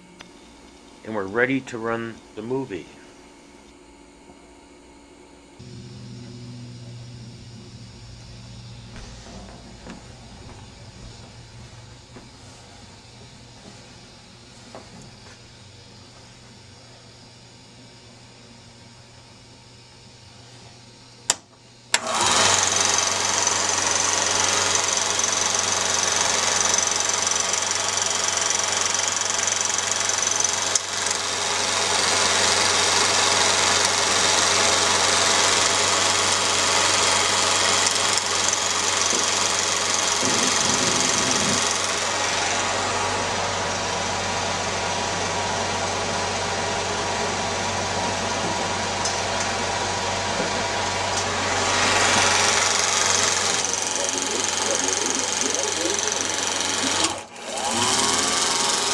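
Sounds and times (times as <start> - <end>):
film projector running: 4.9 - 58.9
projector switch clicks: 21.2 - 22.1.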